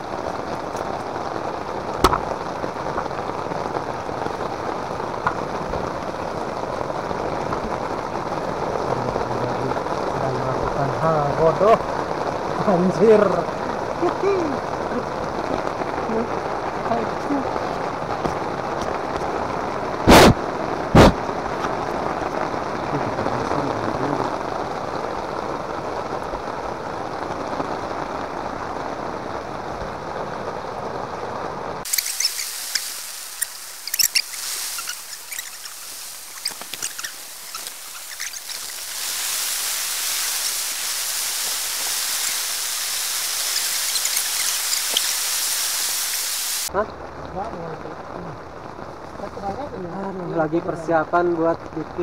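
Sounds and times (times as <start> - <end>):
heavy rain falling: 0.0 - 52.0
sharp knocks: 2.0 - 2.3
water dripping: 31.9 - 46.7.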